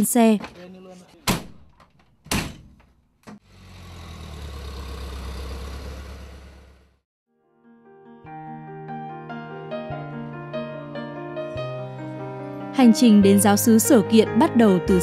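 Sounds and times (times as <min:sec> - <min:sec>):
vehicle engine running: 0:03.4 - 0:07.0.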